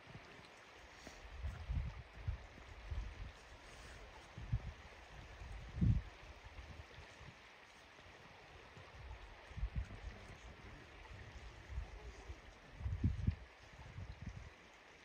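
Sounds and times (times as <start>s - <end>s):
wind rumble on microphone: 1.1s - 14.7s
river water rushing: 2.0s - 12.8s.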